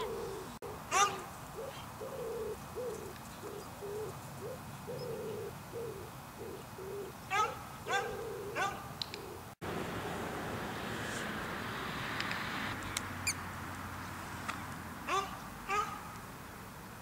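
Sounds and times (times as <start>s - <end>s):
pigeon cooing: 0.0s - 9.5s.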